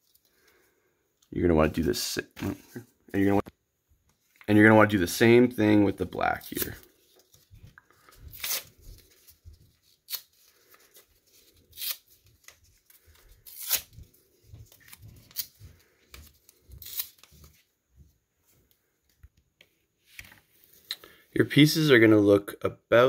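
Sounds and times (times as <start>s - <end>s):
paper tearing: 6.4s - 6.9s, 8.0s - 14.1s, 16.5s - 17.5s.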